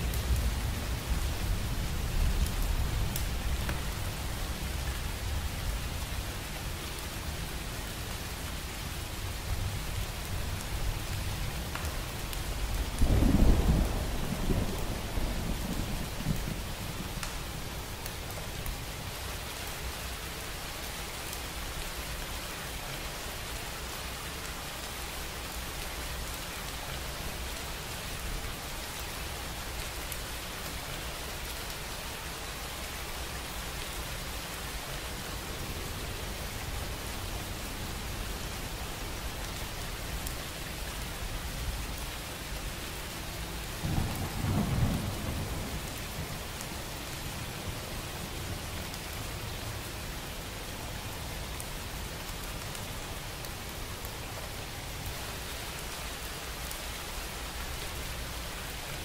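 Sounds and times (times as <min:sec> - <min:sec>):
steady rain: 0:00.0 - 0:59.0
distant thunder rumble: 0:12.9 - 0:17.2, 0:43.8 - 0:46.4.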